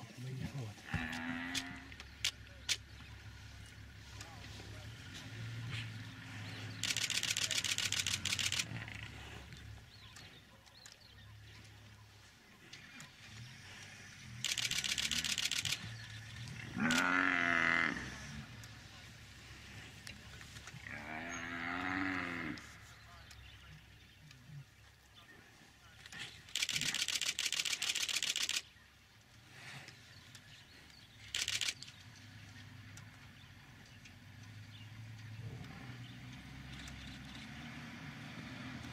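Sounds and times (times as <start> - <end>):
camera shutter clicks: 6.8 - 8.8, 14.4 - 15.9, 26.5 - 28.6, 31.3 - 32.0.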